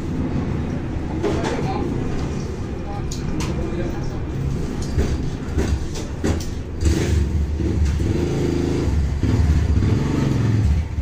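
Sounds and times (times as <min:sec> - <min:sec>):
vehicle engine running: 0:04.3 - 0:11.0.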